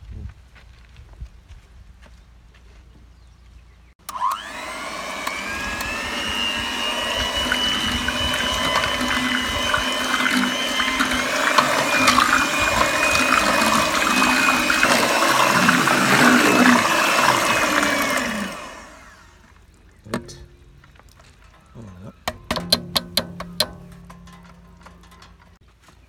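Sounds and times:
electric hand mixer whirring: 0:04.0 - 0:19.4, 0:20.1 - 0:20.8, 0:22.2 - 0:25.4
liquid sloshing: 0:05.8 - 0:25.6
knock: 0:22.3 - 0:23.9.

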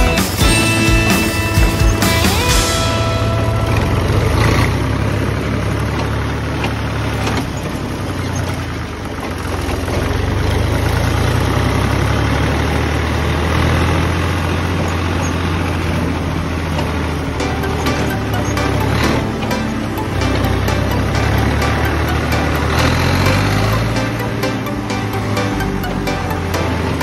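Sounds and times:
tractor diesel engine droning: 0:00.0 - 0:27.0.

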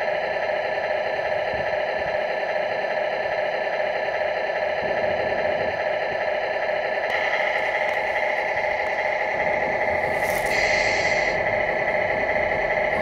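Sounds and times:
diesel engine idle through speaker: 0:06.8 - 0:13.0.

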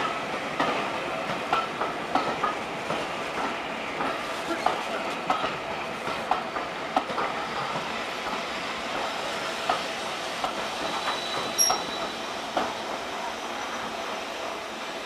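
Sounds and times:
train wheels knocking over rail joints: 0:00.0 - 0:13.0
wheel squeal: 0:10.8 - 0:12.3.

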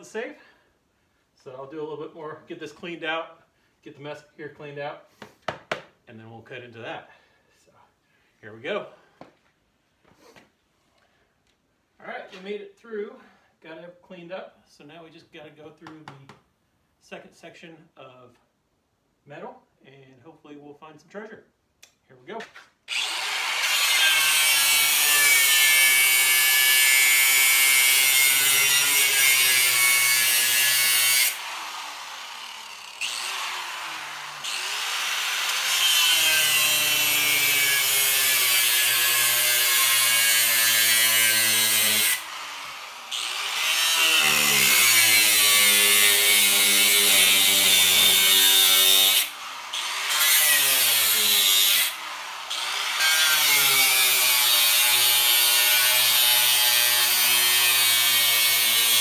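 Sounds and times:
angle grinder cutting steel: 0:22.9 - 0:59.0.

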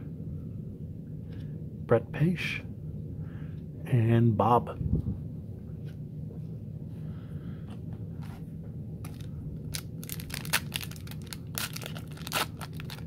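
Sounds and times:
low steady hum: 0:00.0 - 0:13.0
foil wrapper crinkling and tearing: 0:09.0 - 0:13.0.

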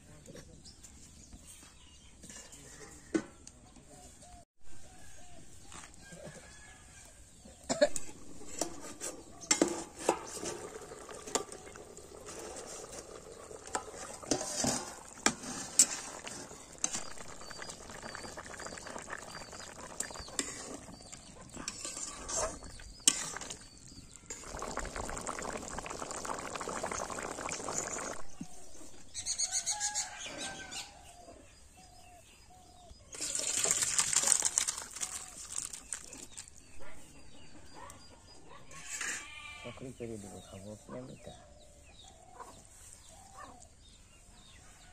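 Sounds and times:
curry cooking in pan: 0:08.1 - 0:28.5
wet pour into steel bowl: 0:09.6 - 0:28.2, 0:33.1 - 0:36.6.

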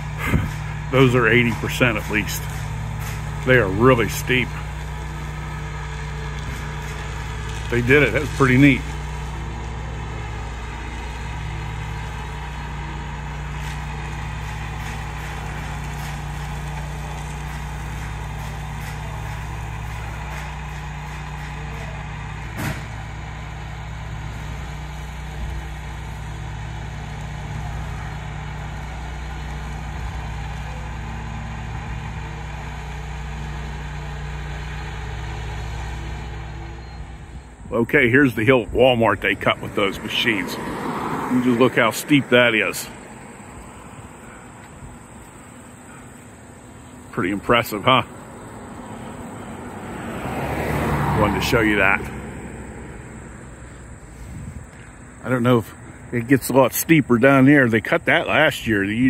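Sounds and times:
engine idling: 0:00.0 - 0:59.0.

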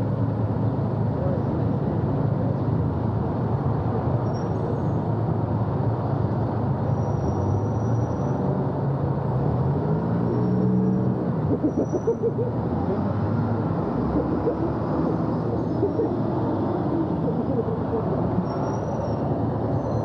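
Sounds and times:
road traffic rumble: 0:00.0 - 0:20.0
vehicle engine rising in pitch: 0:09.9 - 0:18.4.

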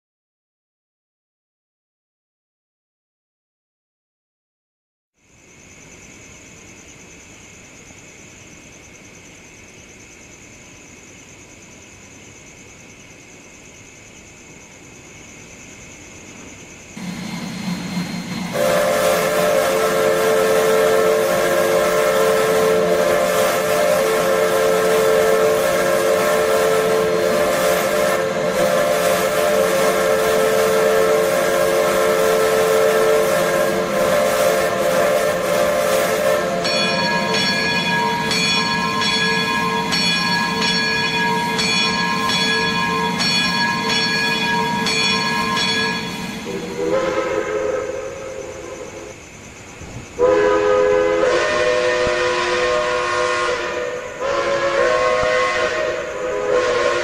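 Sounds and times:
steam hiss: 0:16.8 - 0:57.0
steam locomotive whistle chords: 0:17.0 - 0:49.1, 0:50.2 - 0:57.0.

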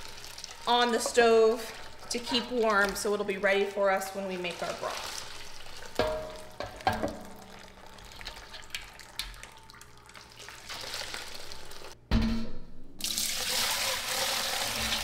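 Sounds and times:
broth pouring through strainer: 0:00.0 - 0:02.8, 0:04.4 - 0:06.5, 0:07.2 - 0:12.0.

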